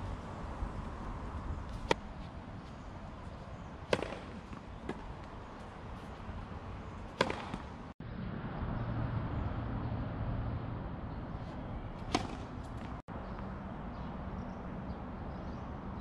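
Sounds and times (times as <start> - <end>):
tennis racket hitting ball: 3.8 - 5.3, 7.1 - 7.8, 12.0 - 13.0.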